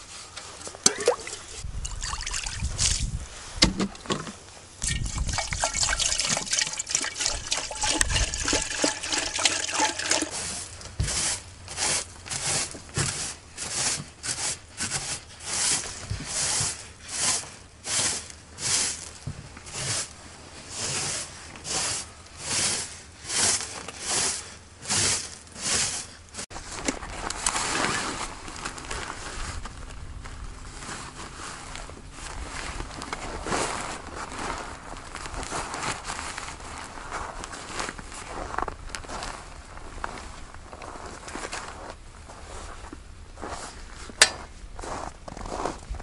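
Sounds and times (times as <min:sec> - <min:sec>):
water pouring and splashing: 0:00.7 - 0:03.2, 0:04.8 - 0:11.3
broom sweeping wooden floor: 0:08.7 - 0:26.8.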